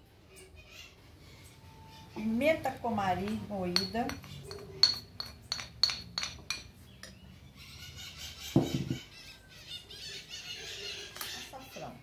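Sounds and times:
birds chirping: 0:00.0 - 0:12.0
bird squawk: 0:07.6 - 0:12.0.

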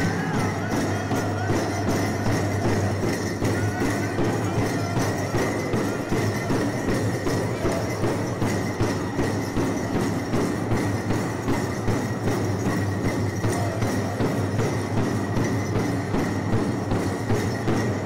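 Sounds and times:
people singing: 0:00.0 - 0:08.0
big drum beat: 0:00.0 - 0:18.0.

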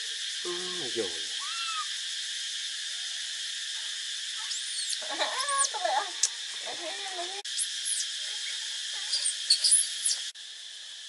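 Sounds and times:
insect chorus: 0:00.0 - 0:11.0
short squeaky calls: 0:01.4 - 0:01.9, 0:04.4 - 0:06.4, 0:07.6 - 0:10.3
high chirps: 0:04.4 - 0:06.4.

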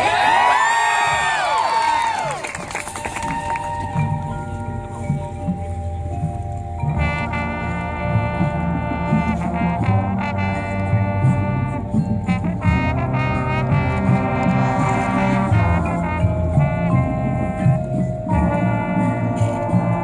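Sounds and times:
marching band horns: 0:00.0 - 0:05.6, 0:06.8 - 0:20.0
drums: 0:00.0 - 0:20.0
low brass: 0:06.8 - 0:20.0.

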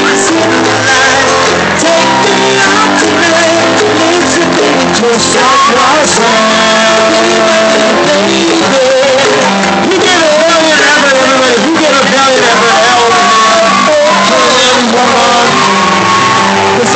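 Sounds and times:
loud music with singing: 0:00.0 - 0:16.9.

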